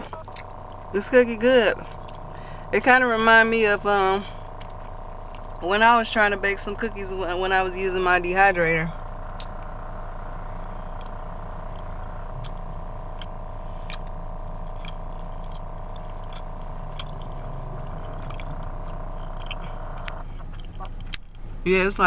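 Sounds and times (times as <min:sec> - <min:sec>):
car cabin mechanical hum: 0:00.0 - 0:22.0
cookie crunching being chewed: 0:01.8 - 0:02.4, 0:04.2 - 0:05.6, 0:10.4 - 0:21.6.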